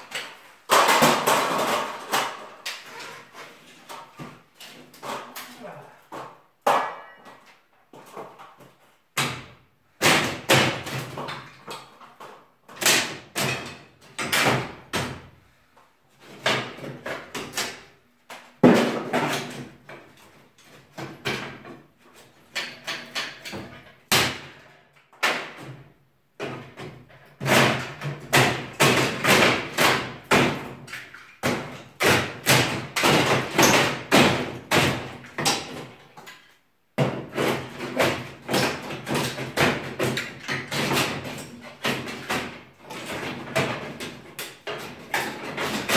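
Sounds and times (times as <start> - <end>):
pry bar knocking wooden boards: 9.2 - 11.9, 26.4 - 30.8, 31.4 - 36.0, 37.0 - 45.9.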